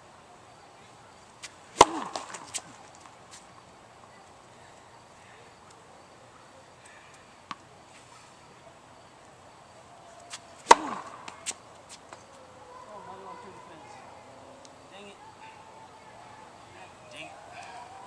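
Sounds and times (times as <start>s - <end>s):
racket striking tennis ball: 1.4s - 2.8s, 10.3s - 12.3s
tennis ball bouncing on court: 1.8s - 3.1s, 10.3s - 12.3s.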